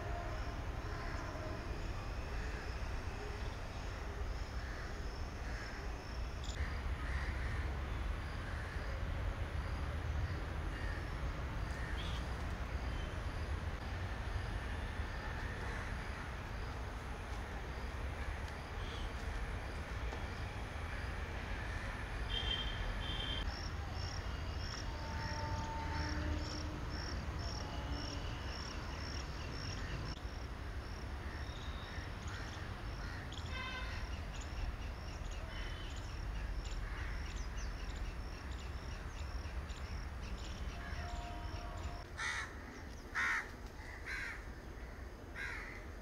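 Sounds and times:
crows cawing: 6.6 - 7.8, 42.2 - 45.8.

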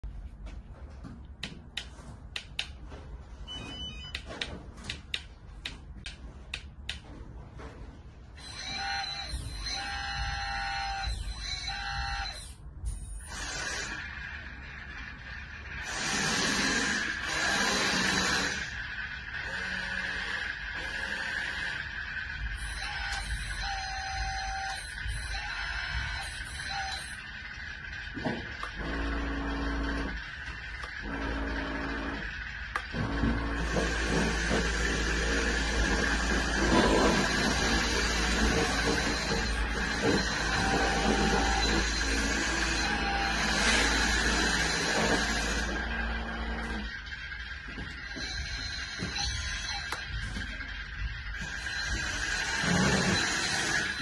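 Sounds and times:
high hydraulic whine: 0.0 - 54.0
low hum with rumble: 0.0 - 54.0
electronic buzzing tones: 19.4 - 54.0.

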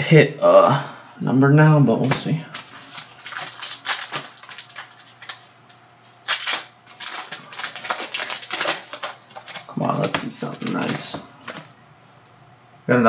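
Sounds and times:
foil wrapper crinkling: 2.0 - 11.8.

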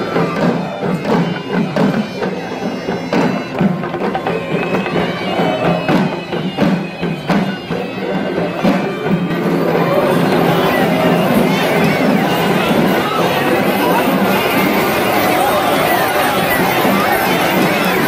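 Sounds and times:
crowd shouting: 0.0 - 18.0
drums beating: 0.0 - 18.0.

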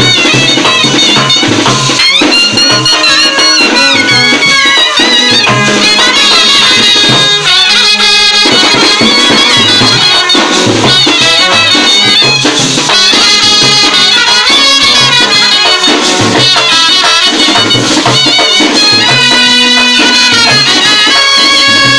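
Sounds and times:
bass drum beat: 0.0 - 7.2
brass band playing: 0.0 - 21.9
hand cymbals clashing: 0.0 - 21.9
snare drum: 0.0 - 21.9.

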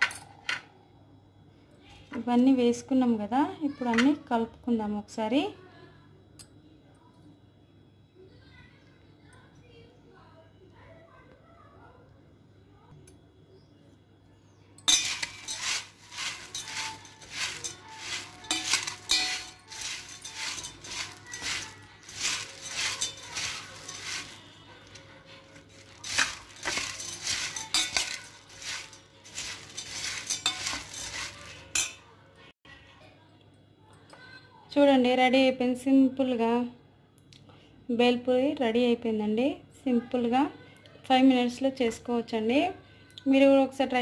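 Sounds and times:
spoon clinking and scraping bowl: 14.8 - 32.0.

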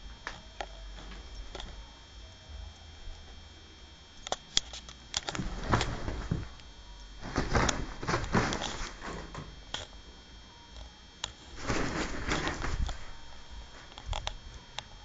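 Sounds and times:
bedding rustling: 5.2 - 9.9, 11.4 - 14.8.

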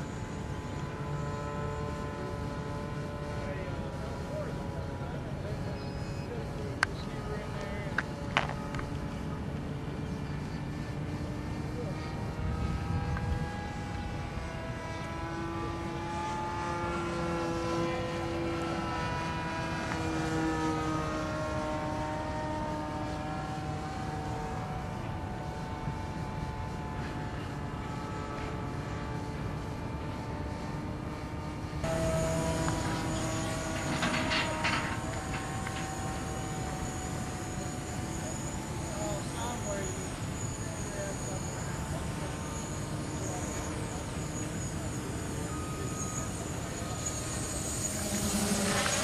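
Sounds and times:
model airplane engine drone: 0.0 - 49.0.

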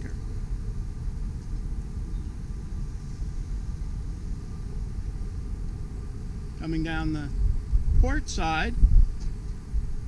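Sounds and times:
low unsteady rumble: 0.0 - 10.0.

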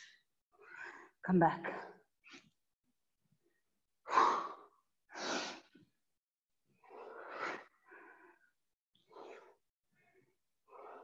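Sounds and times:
woman breathing hard: 6.8 - 11.0.

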